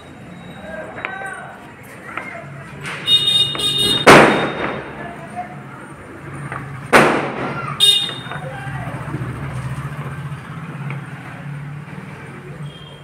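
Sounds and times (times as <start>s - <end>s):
firecracker bangs: 2.8s - 5.0s, 6.9s - 8.3s.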